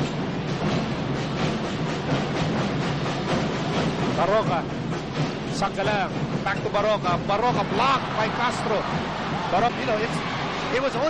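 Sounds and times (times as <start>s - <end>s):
arena crowd noise: 5.6s - 11.0s.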